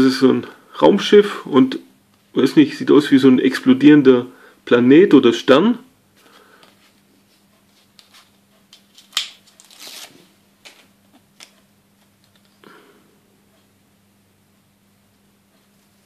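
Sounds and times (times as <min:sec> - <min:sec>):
paper card rustling: 0:07.7 - 0:11.5.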